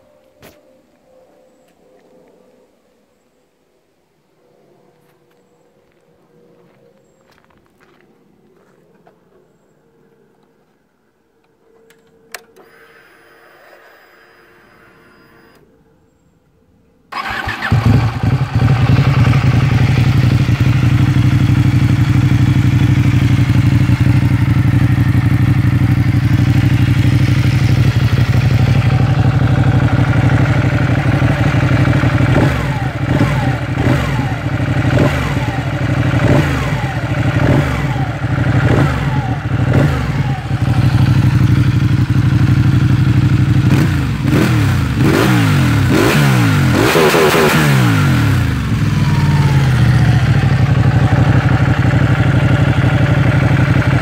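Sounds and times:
motorcycle engine starting and idling: 17.1 - 54.0.

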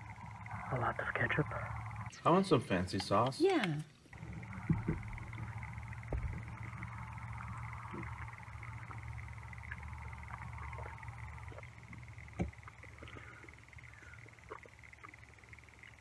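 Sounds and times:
low background hum: 0.0 - 16.0
man chewing food: 10.8 - 15.5.

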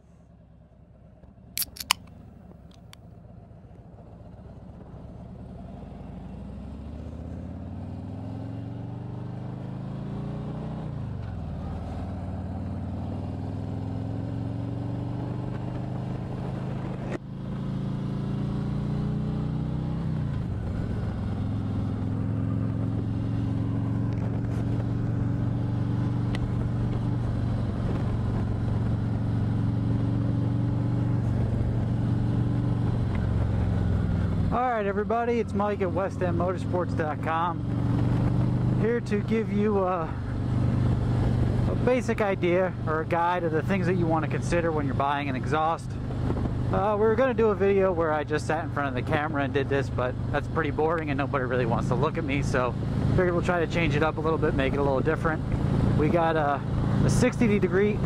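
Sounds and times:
sharp clicks: 1.6 - 3.0
motorcycle engine accelerating: 4.0 - 58.0.

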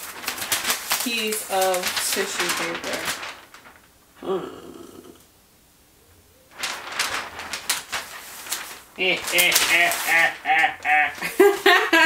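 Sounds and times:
tissue paper crinkling: 0.0 - 4.0, 6.5 - 12.0
short wordless vocal sound: 4.2 - 5.2.

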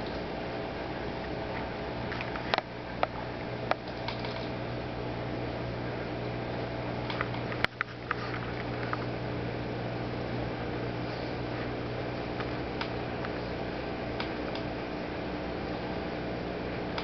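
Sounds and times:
aquarium equipment hum and hiss: 0.0 - 17.0
small sharp clicks: 2.1 - 4.6, 7.0 - 9.0, 12.4 - 13.3, 14.2 - 14.7.

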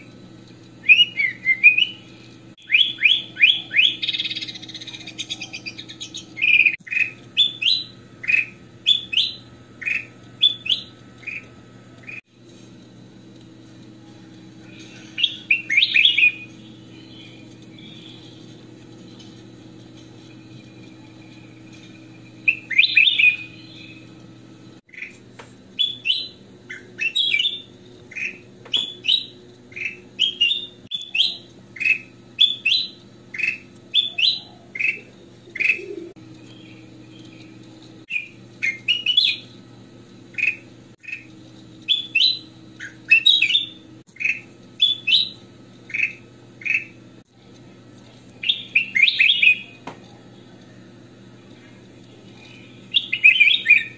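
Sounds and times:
bird singing chirped phrases: 0.8 - 2.0, 2.6 - 11.5, 14.7 - 18.5, 22.4 - 24.2, 25.8 - 39.6, 48.4 - 50.9, 51.5 - 53.9
low hum: 3.3 - 31.6.

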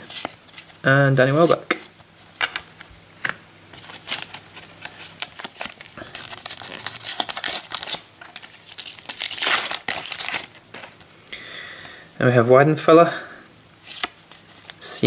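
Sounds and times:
wrapper crinkling and tearing: 3.8 - 11.1.

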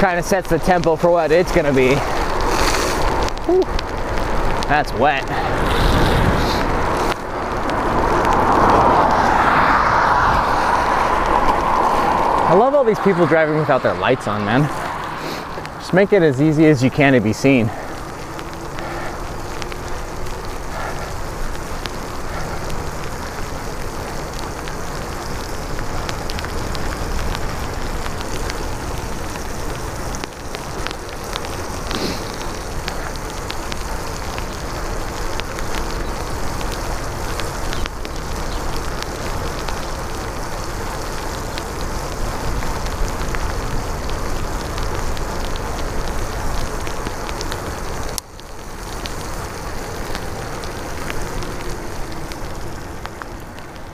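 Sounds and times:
bicycle tyres hissing through water: 0.0 - 53.9
rain: 0.0 - 53.9
faint ticks: 17.7 - 53.9.

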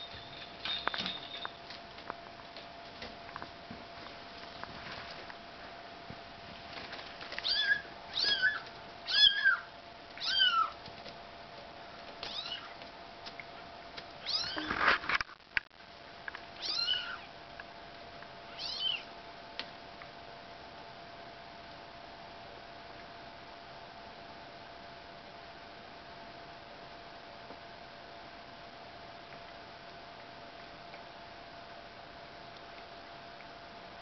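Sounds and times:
kitten mewing: 16.6 - 17.3.

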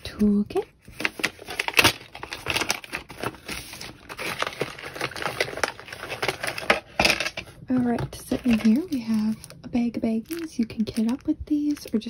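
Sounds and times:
pouch crinkling and rustling: 0.9 - 7.3.

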